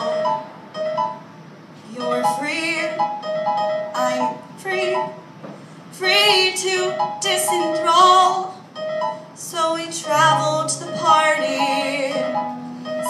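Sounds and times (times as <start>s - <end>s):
electronic keyboard piano accompaniment: 0.0s - 13.0s
woman singing with vibrato: 1.9s - 3.1s, 4.0s - 5.2s, 5.9s - 8.6s, 9.4s - 13.0s.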